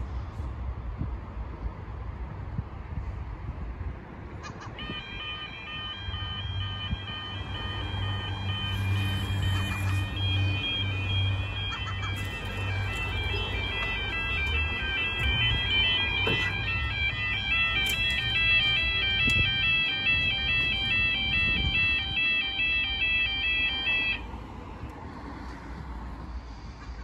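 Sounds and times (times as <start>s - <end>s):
level crossing two-tone warning alarm: 4.7s - 24.3s.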